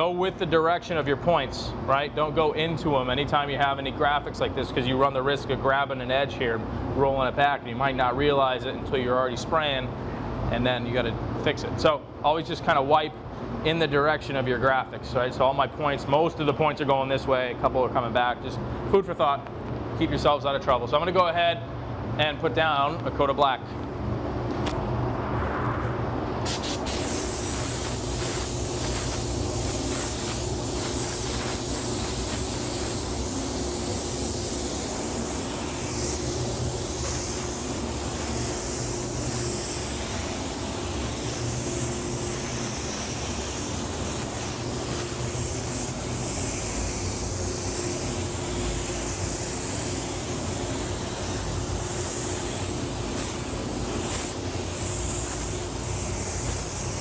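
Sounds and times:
fans humming: 0.0s - 57.0s
spray gun hissing: 26.4s - 57.0s.

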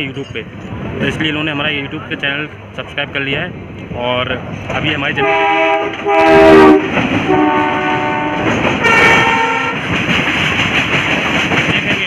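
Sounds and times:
train coaches rumbling on rails: 0.0s - 12.0s
train horn blasts: 5.2s - 9.8s.

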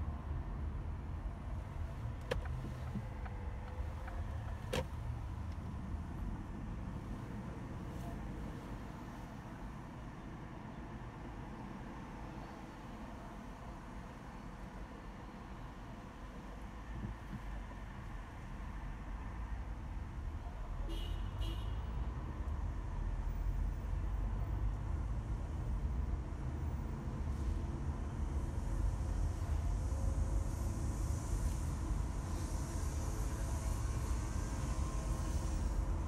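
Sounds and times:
car interior road rumble: 0.0s - 10.1s, 15.6s - 21.1s
car road and engine rumble: 0.0s - 36.0s.

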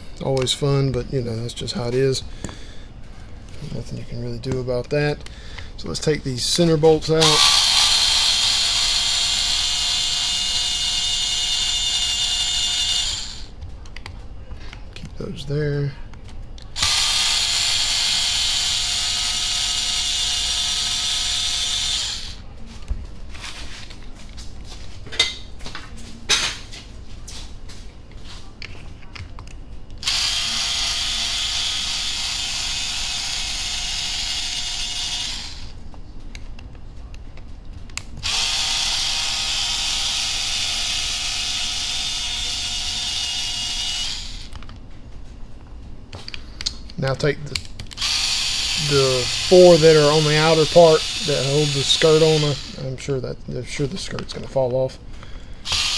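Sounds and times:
electric screwdriver whirring: 7.2s - 13.5s, 16.8s - 22.4s, 30.0s - 35.7s, 38.2s - 44.6s, 47.9s - 52.8s, 55.6s - 55.9s.

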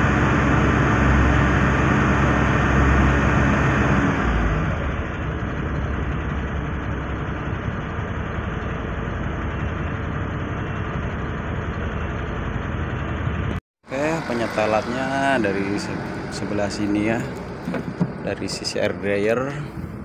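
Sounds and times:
diesel truck engine idling: 0.0s - 20.0s.

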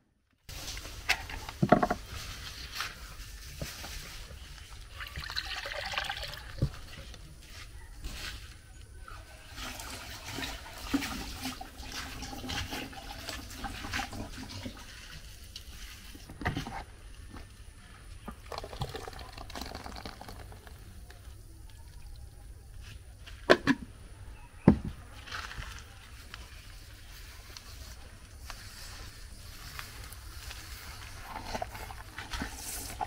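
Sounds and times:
liquid pouring and sloshing: 4.9s - 7.1s, 9.2s - 16.2s, 18.3s - 20.8s.

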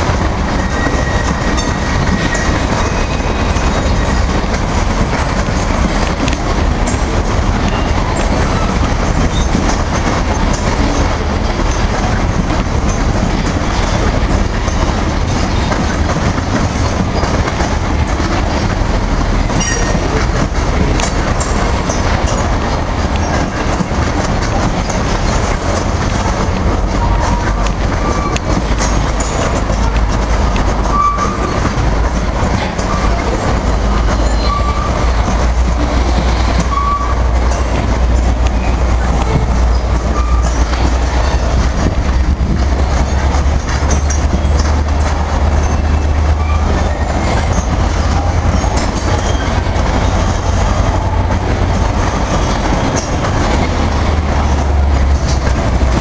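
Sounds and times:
train wheels rumbling on rail: 0.0s - 56.0s
high wheel squeal: 0.5s - 4.3s, 26.9s - 29.9s, 30.8s - 31.6s, 34.1s - 35.1s, 36.4s - 37.7s, 39.7s - 41.6s, 45.6s - 50.2s.

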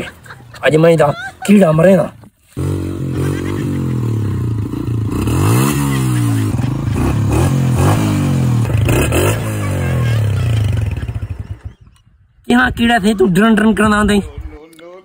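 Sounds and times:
motorcycle engine idling and revving: 2.6s - 12.2s.

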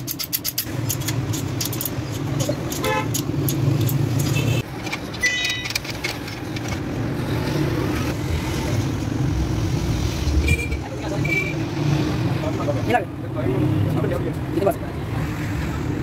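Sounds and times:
car horn toot: 2.8s - 3.2s.

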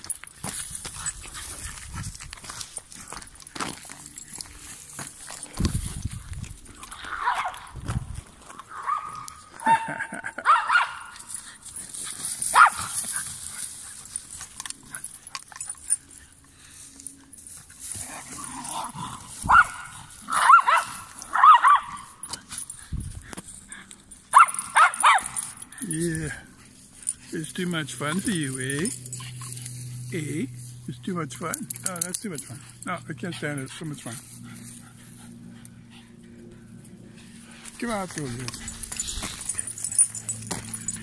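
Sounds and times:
dog barking high-pitched: 7.1s - 7.8s, 8.7s - 11.2s, 12.5s - 12.9s, 19.4s - 22.1s, 24.3s - 25.4s.

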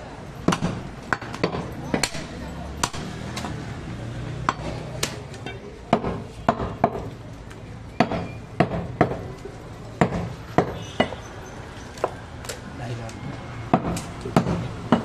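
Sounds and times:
cleaver chopping on wooden block: 0.4s - 3.6s, 5.9s - 7.1s, 8.0s - 9.2s, 10.0s - 11.2s, 13.7s - 15.0s.

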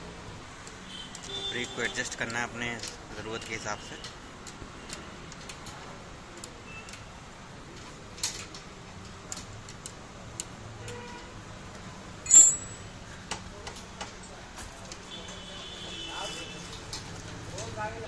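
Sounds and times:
spanners clicking on metal: 12.3s - 12.9s.

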